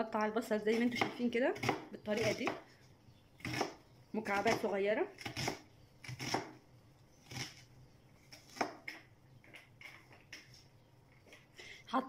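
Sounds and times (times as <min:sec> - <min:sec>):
knife chopping on cutting board: 0:00.7 - 0:02.6, 0:03.4 - 0:06.6, 0:08.3 - 0:09.0.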